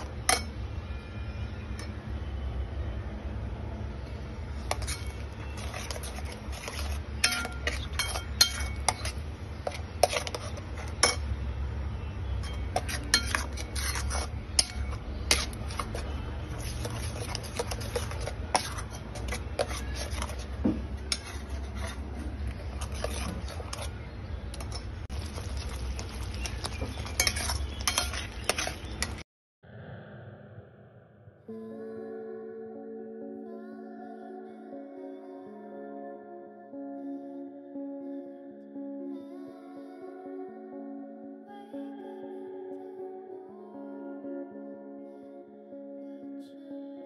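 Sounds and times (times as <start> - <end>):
spatula scraping steel pot: 0.0 - 0.6, 4.6 - 11.3, 12.3 - 29.2.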